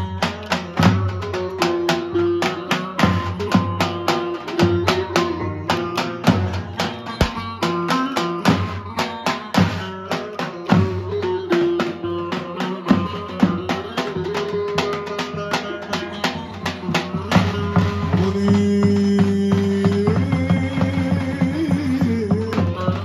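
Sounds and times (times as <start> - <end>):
bass drum beat: 4.6 - 9.0.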